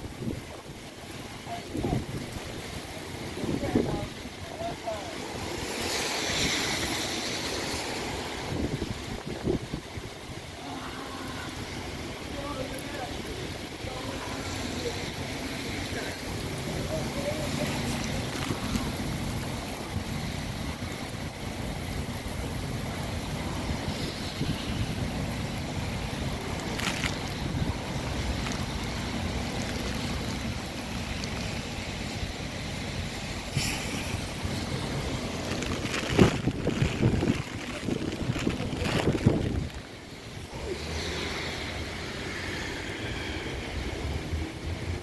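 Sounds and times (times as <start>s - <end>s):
gusty wind buffeting microphone: 0.0s - 10.6s, 18.2s - 40.7s
heavy rain falling: 0.0s - 45.0s.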